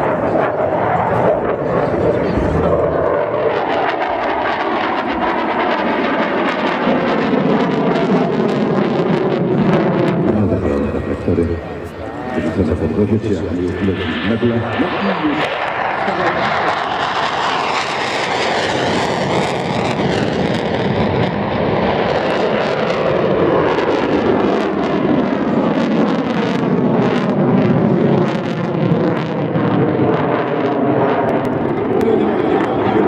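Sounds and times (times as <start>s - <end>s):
jet engine roar with crackle: 0.0s - 33.0s.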